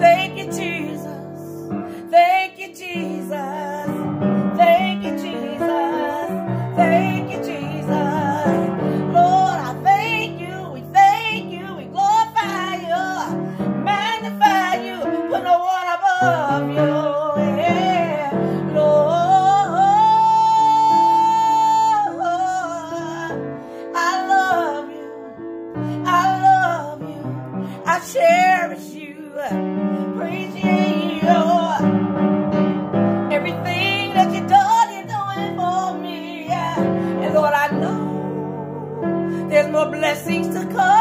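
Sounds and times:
woman singing gospel melody: 0.0 - 32.2, 33.3 - 41.0
piano chords: 0.0 - 41.0.

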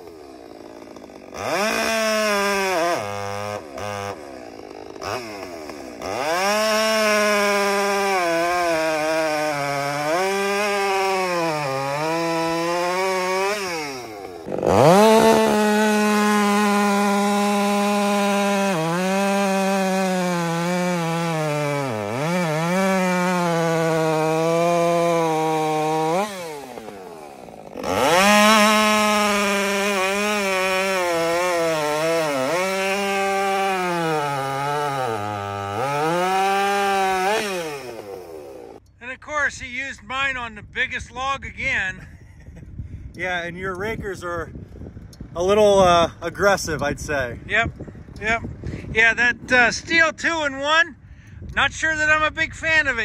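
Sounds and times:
chainsaw cutting log: 0.0 - 39.0.

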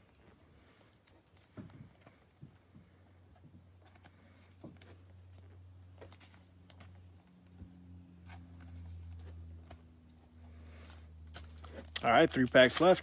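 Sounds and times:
steady low hum: 0.0 - 12.4
cards clicking and rustling: 3.8 - 7.3, 10.7 - 13.0.

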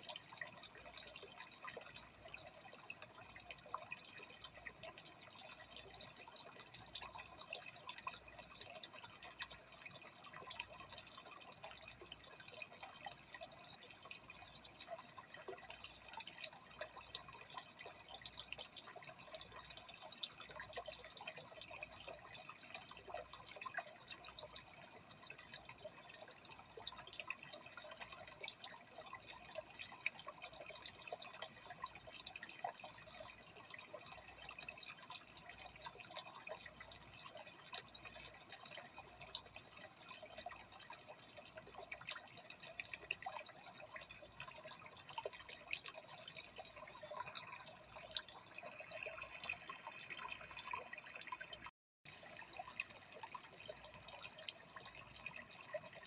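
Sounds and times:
aquarium water trickling and bubbling: 0.0 - 56.0.

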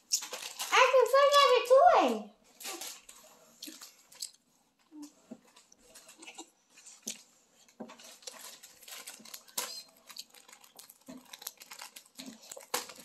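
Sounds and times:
packaging crinkling: 0.0 - 0.9, 7.9 - 13.0.

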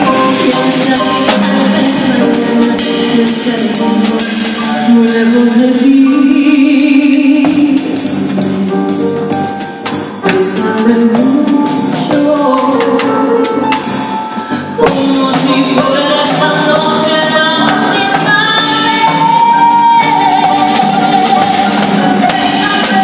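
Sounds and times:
woman singing into a microphone: 0.0 - 9.1, 10.2 - 13.8, 14.6 - 23.0
band playing: 0.0 - 23.0.

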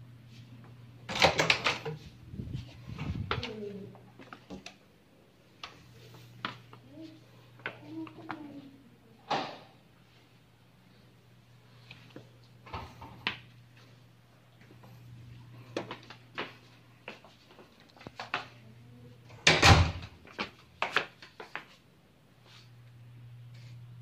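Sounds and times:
low steady hum: 0.0 - 20.8, 22.0 - 24.0.

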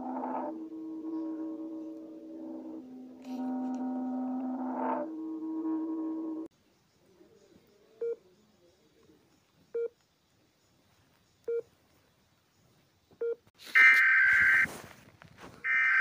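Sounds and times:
harsh buzzing alert tone: 0.0 - 6.5
short electronic beeps: 13.2 - 14.7.

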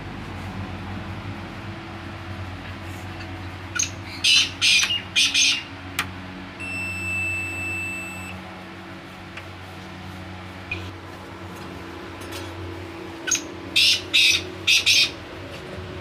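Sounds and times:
steady low hum: 0.0 - 16.0
high electronic beep: 6.6 - 8.4.

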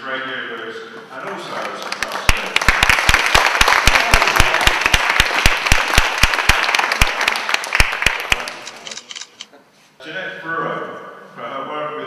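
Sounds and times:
audience applauding: 1.2 - 8.8
single loud claps: 1.9 - 8.6.

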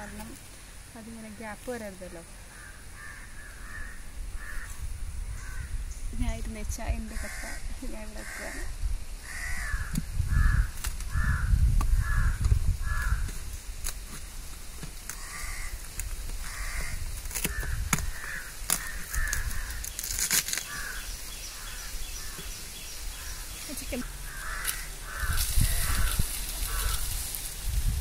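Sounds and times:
crows cawing: 2.4 - 5.8, 7.1 - 13.4, 15.1 - 27.2.

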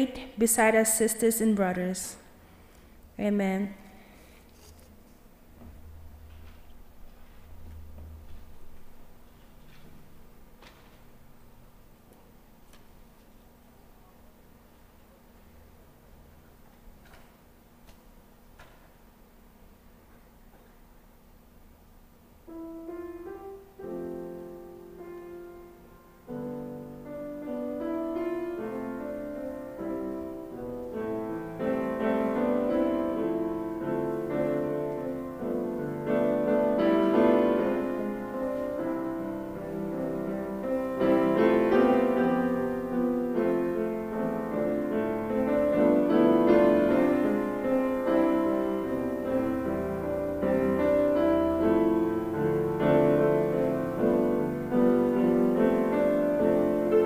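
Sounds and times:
grand piano playing: 22.4 - 57.0.

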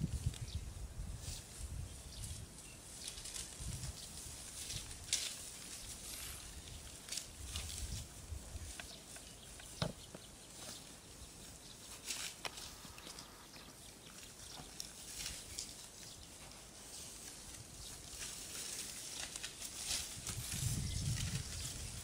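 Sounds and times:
grass being torn and chewed: 2.2 - 9.8, 11.8 - 22.0.

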